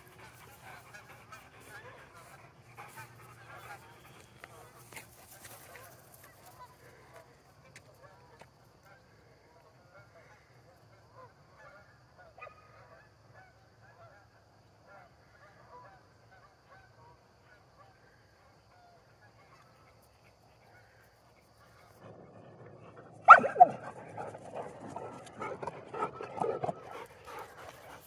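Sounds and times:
dog panting: 0.0 - 5.6, 23.3 - 28.0
scuffling: 0.1 - 6.5
distant calls: 20.6 - 28.0.

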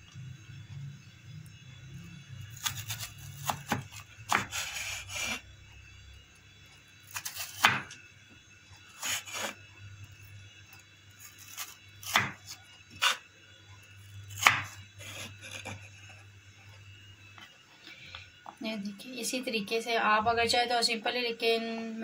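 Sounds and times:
knife chopping potato on wooden board: 2.6 - 5.4, 7.1 - 8.0, 11.4 - 13.2, 14.3 - 15.9.

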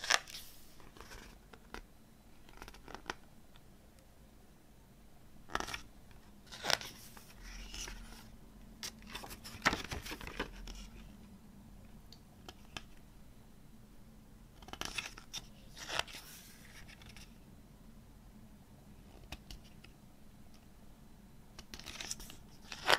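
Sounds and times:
booklet pages turning: 0.0 - 1.8, 2.4 - 3.2, 5.5 - 11.1, 14.6 - 17.4, 21.6 - 22.9.

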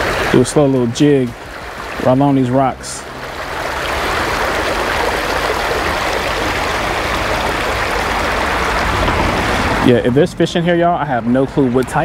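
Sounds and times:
water running over rocks: 0.0 - 12.0.

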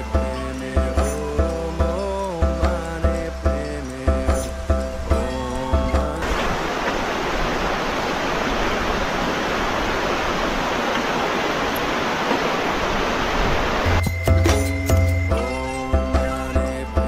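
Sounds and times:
background music with deep bass: 0.0 - 6.2, 13.9 - 17.0
rushing river water: 0.0 - 17.0.

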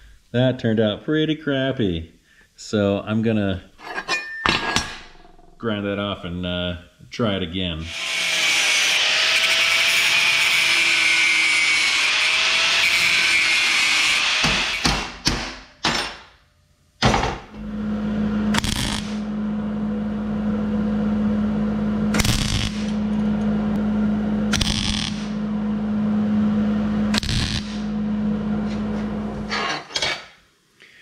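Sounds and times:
welder hum: 7.8 - 15.0, 17.5 - 29.9
welding arc crackling: 18.5 - 19.3, 22.1 - 25.5, 27.1 - 28.0.

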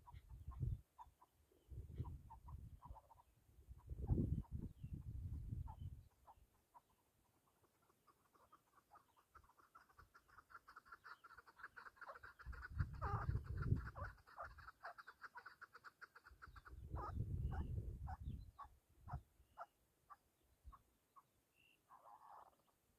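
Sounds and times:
partridge chuck calls: 0.0 - 22.8.

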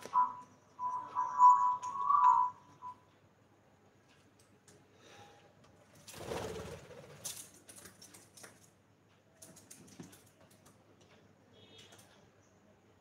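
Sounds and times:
bird chirp: 0.0 - 3.2.

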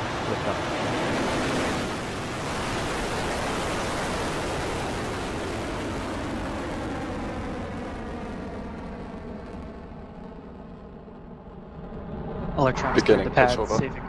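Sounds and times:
rocket engines roaring: 0.0 - 14.0.

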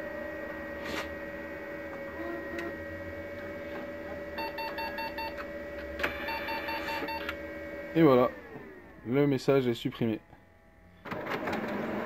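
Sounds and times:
printer machine hum: 0.0 - 9.7
short electronic beeps: 4.4 - 5.4, 6.2 - 7.3.

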